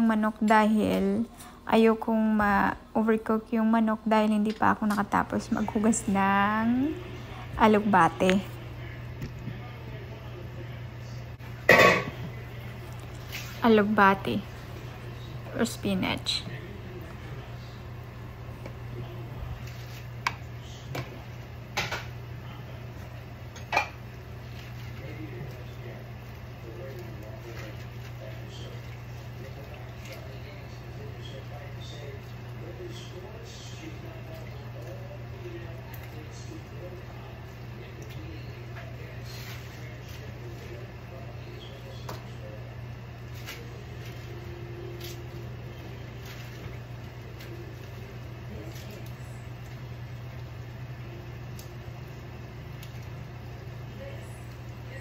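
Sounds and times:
steady low hum: 0.0s - 55.0s
kitchenware clattering: 11.6s - 12.4s, 21.7s - 22.2s, 23.5s - 24.0s.

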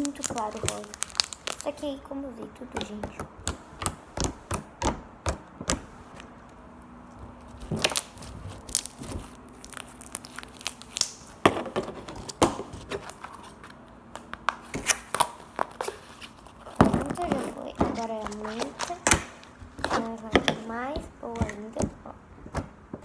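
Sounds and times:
slime crackling and popping: 0.0s - 2.0s, 7.5s - 13.2s, 17.0s - 20.6s.

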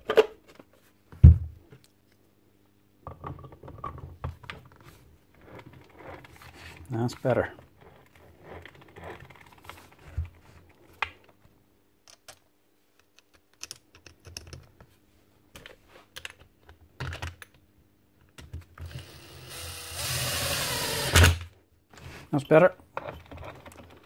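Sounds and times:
power drill running: 18.9s - 21.4s.

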